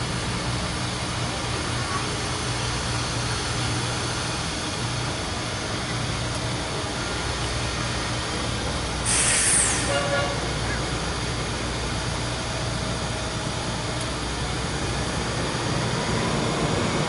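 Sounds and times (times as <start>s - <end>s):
truck engine humming: 0.0s - 17.0s
short loud hiss: 9.0s - 10.0s.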